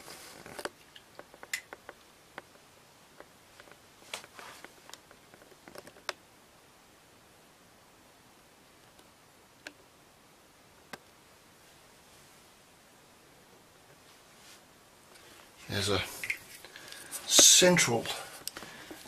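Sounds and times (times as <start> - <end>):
rustle: 0.0 - 2.0, 2.6 - 6.2, 11.5 - 12.8, 13.8 - 19.0
faint small clicks and knocks: 0.0 - 6.2, 8.8 - 9.9, 10.8 - 11.2.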